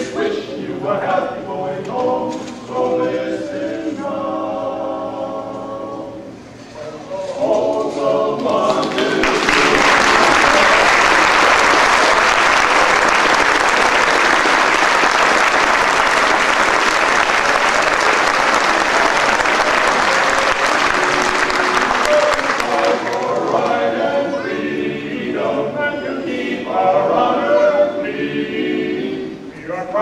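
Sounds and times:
people singing: 0.0 - 30.0
audience applauding: 8.4 - 24.0.

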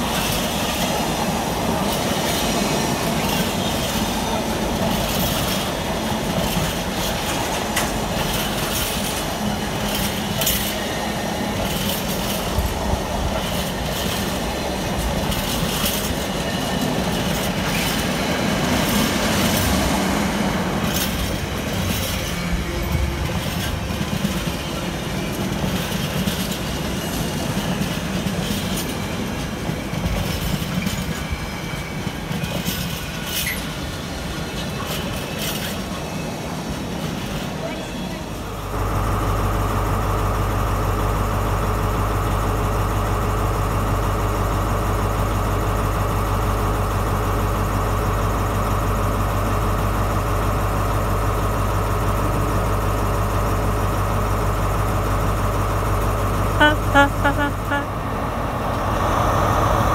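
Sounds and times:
sharp clicks of train wheels: 0.0 - 37.6
train wheels rumbling and rattling: 0.0 - 59.9.

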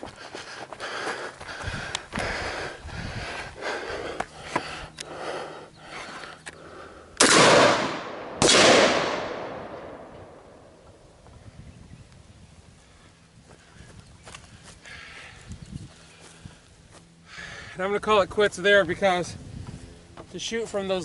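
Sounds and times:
light footsteps: 0.0 - 6.6, 13.4 - 17.2
rifle shots with echo: 7.2 - 10.6.

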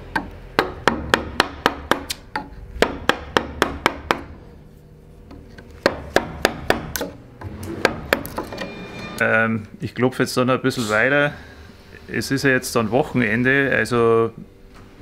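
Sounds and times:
mallet knocking on chisel handle: 0.1 - 4.4, 5.3 - 8.5.

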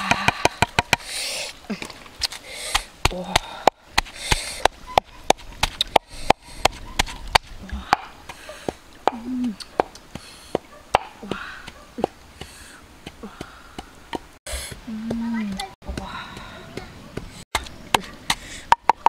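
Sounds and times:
wooden pestle pounding in mortar: 0.0 - 1.0.

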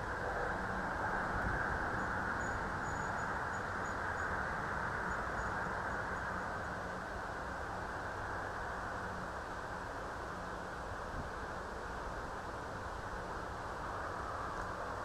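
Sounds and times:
outdoor hiss and rumble: 0.0 - 15.0.

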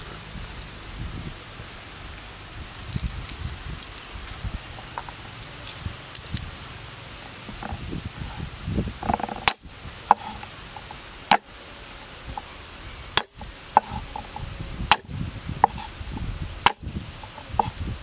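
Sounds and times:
knife chopping on wooden block: 13.2 - 15.9, 16.6 - 17.8.

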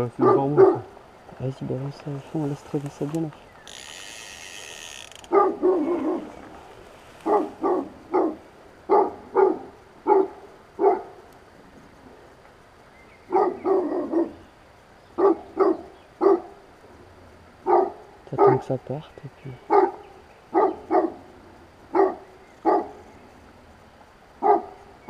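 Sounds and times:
dog barking: 0.2 - 0.9, 5.3 - 6.3, 7.2 - 11.2, 13.3 - 14.4, 15.2 - 16.6, 17.6 - 18.7, 19.7 - 21.2, 21.9 - 23.0, 24.4 - 24.8.

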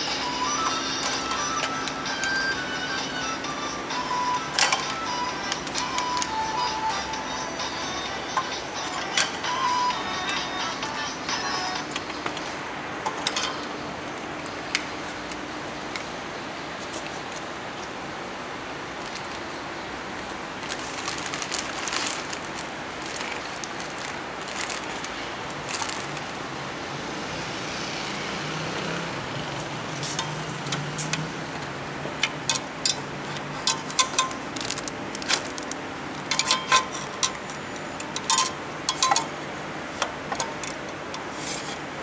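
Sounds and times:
plastic bag crinkling: 20.2 - 26.4, 34.4 - 35.8
small metal parts clicking: 32.2 - 39.3.

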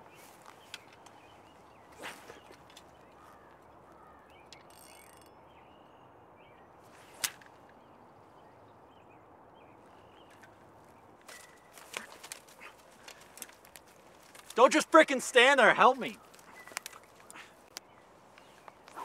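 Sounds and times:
outdoor background: 0.0 - 19.0
fishing rod swishing: 1.9 - 2.9.

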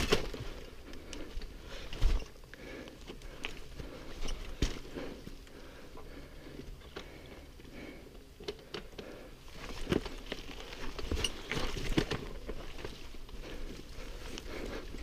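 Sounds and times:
bike knocks and rattles: 0.0 - 2.4, 3.5 - 5.0, 9.6 - 13.3
bike tyres over dirt and stones: 0.0 - 15.0.

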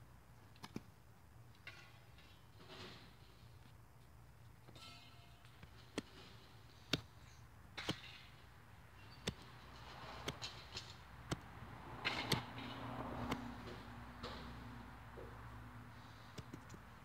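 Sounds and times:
hatchet chopping into dirt: 7.8 - 8.3, 10.2 - 12.6, 13.3 - 13.5.

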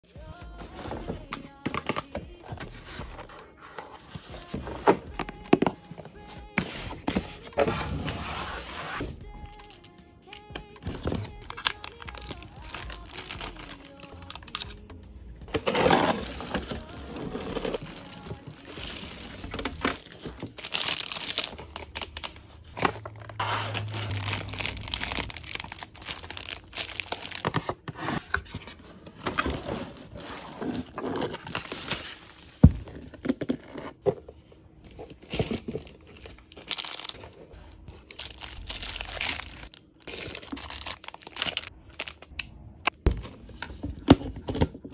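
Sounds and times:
plastic bags crinkling: 10.7 - 14.9, 15.5 - 27.6, 35.2 - 42.4.

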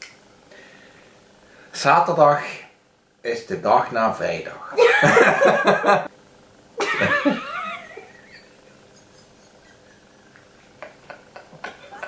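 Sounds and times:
high wavering laugh: 4.6 - 6.1, 6.8 - 12.0
loud burst of laughter: 4.8 - 6.1, 6.8 - 12.0.

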